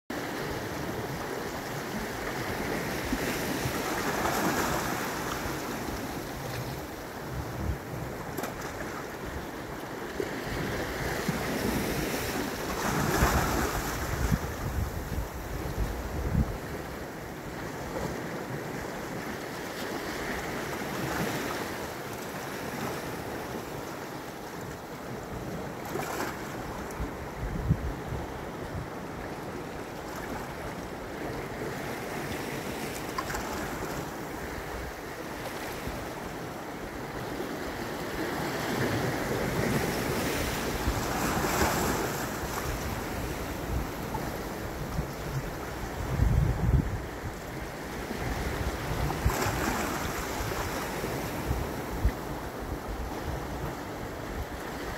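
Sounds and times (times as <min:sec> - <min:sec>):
waves washing against rocks: 0:10.4 - 0:18.8
wind buffeting microphone: 0:10.5 - 0:17.1, 0:26.9 - 0:29.0, 0:39.1 - 0:54.8.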